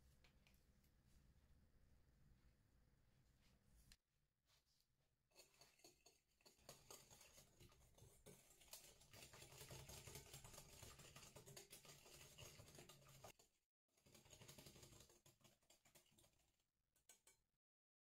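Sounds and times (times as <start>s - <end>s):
whisk rattling against glass bowl: 5.4s - 16.4s.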